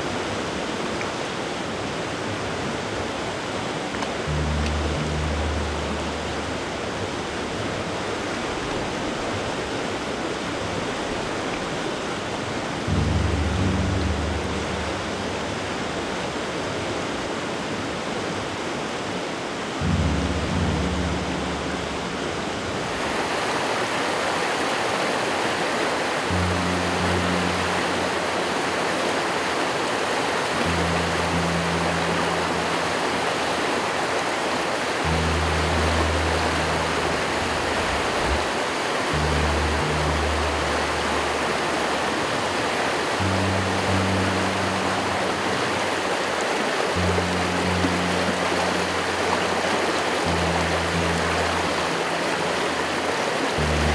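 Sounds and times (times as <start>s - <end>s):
brook water rushing: 0.0s - 53.9s
low sustained music notes: 0.0s - 53.9s.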